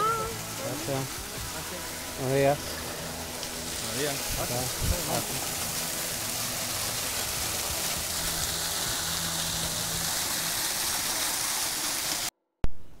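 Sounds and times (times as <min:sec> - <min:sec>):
waterfall splashing into pool: 0:00.0 - 0:12.3.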